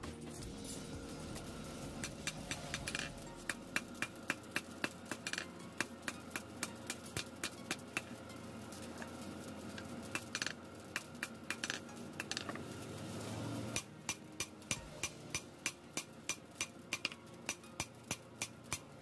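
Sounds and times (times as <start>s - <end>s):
hammer striking metal on anvil: 13.8s - 18.9s.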